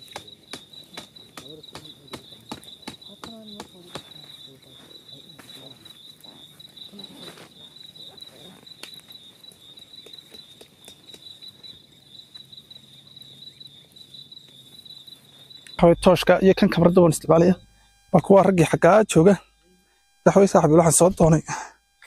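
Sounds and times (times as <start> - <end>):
faint voices murmuring: 0.0 - 8.7
crickets trilling: 0.0 - 22.0.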